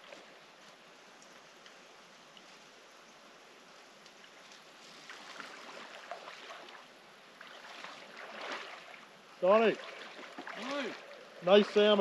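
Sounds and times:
flowing river water hiss: 0.0 - 12.0
small splashes and ticks: 0.0 - 12.0.

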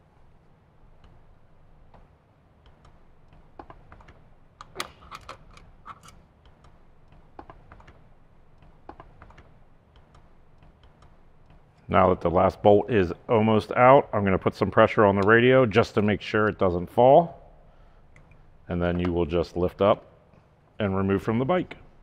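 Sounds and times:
allen wrench clicking on bolt: 4.6 - 7.6.

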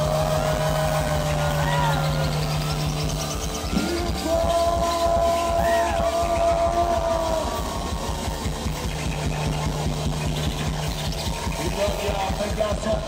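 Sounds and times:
bass: 0.0 - 13.0
drum beat: 0.0 - 13.0.

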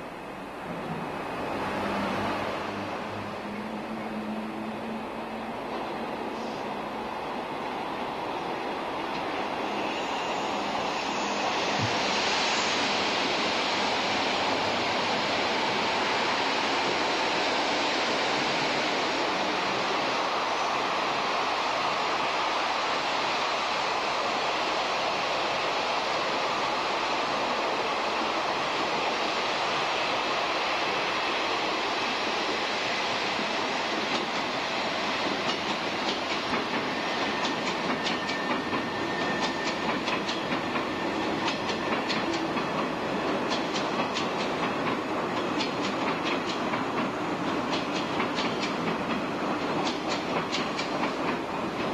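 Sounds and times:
train wheels rumbling on rails: 0.0 - 51.9
wheels clickety-clack on rail joints: 33.3 - 51.9.

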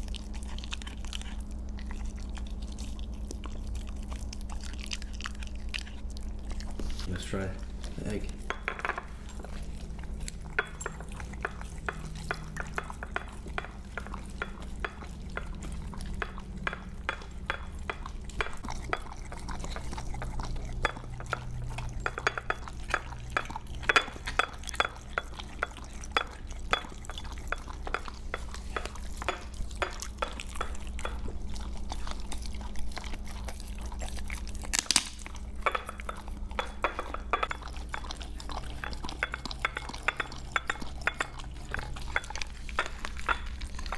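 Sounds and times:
dog lapping: 0.0 - 34.7, 35.3 - 43.9
tongue knocking glass dish: 8.5 - 9.1, 10.6 - 19.1, 20.8 - 31.3, 35.6 - 37.7.

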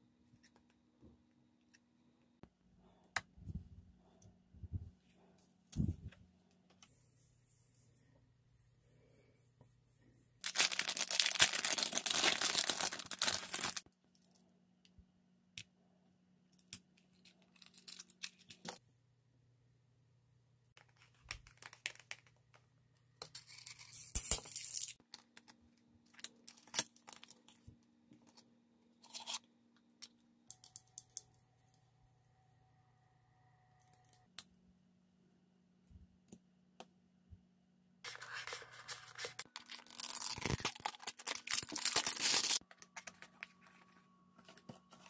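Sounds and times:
packaging tearing and crinkling: 10.4 - 13.8, 38.2 - 43.3.

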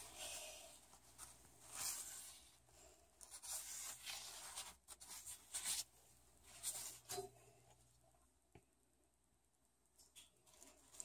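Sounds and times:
paintbrush scratching on paper: 0.0 - 7.3.

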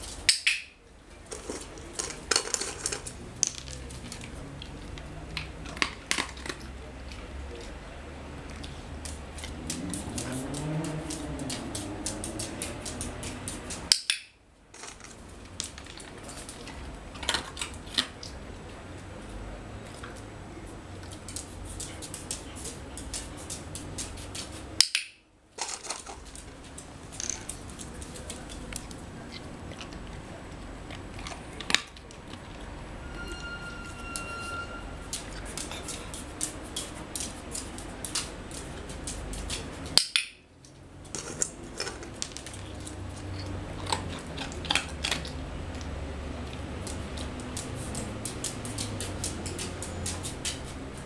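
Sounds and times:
dog claws clicking on tiles: 0.0 - 7.8, 8.4 - 18.4, 21.0 - 32.7, 35.1 - 51.0.

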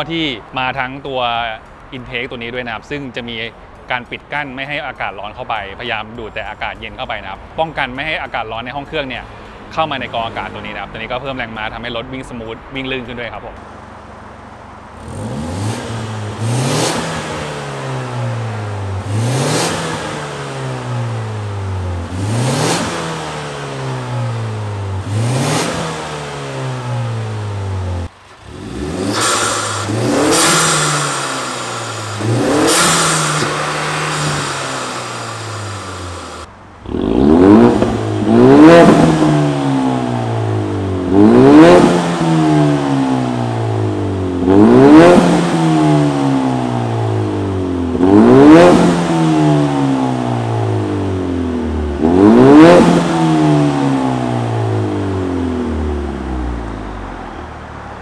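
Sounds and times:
car engine revving: 13.6 - 58.0.

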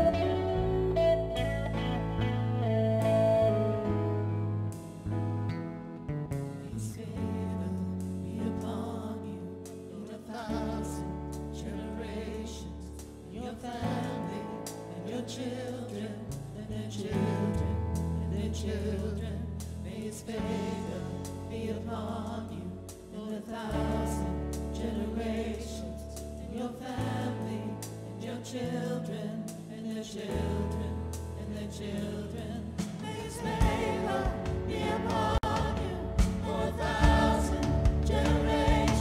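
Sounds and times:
keyboard chords: 0.0 - 6.8, 33.1 - 39.0
acoustic guitar: 0.0 - 8.6, 30.2 - 39.0
bass guitar: 0.0 - 39.0
people singing: 6.6 - 39.0.

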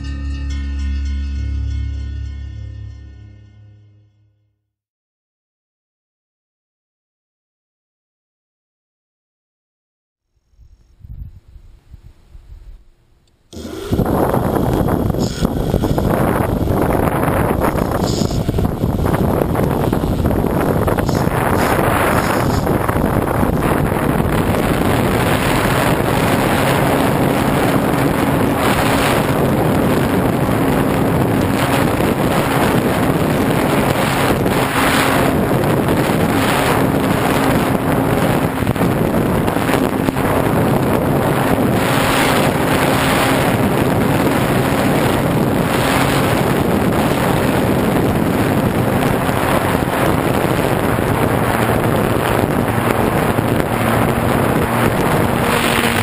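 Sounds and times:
wind rush on microphone: 10.5 - 56.0
model airplane motor and propeller: 13.2 - 56.0.

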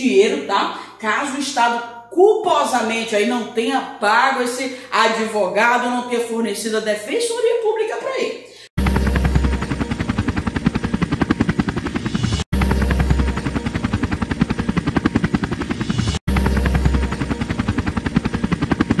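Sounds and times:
helicopter turbine noise: 8.7 - 19.0
helicopter rotor beating: 8.8 - 19.0.

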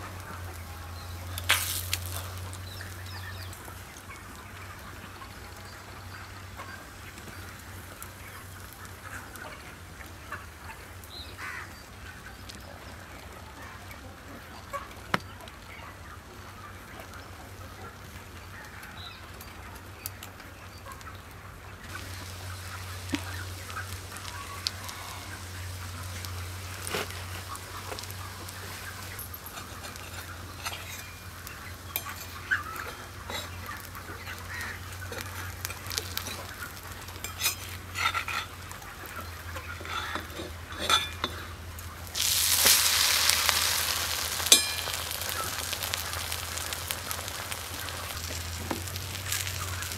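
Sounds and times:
loud sizzle: 0.0 - 13.2, 21.9 - 49.9
omelette frying in a pan: 0.0 - 13.3, 21.9 - 49.9
spatula tapping and scraping pan: 39.8 - 41.5, 44.4 - 45.9.

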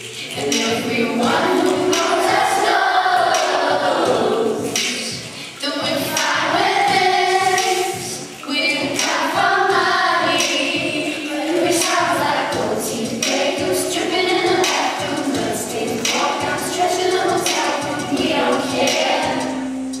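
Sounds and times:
choir singing: 0.4 - 20.0.

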